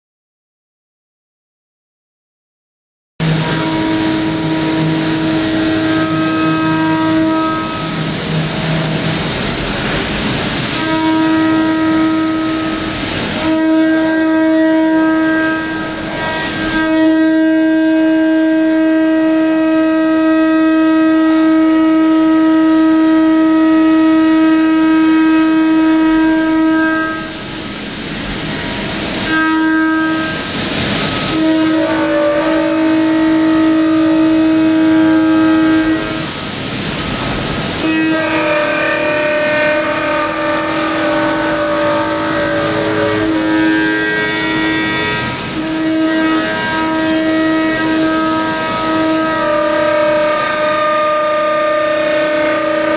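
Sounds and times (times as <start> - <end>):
harsh hissing noise: 3.2 - 20.2, 21.0 - 52.9
milling cutter whine: 25.0 - 52.9.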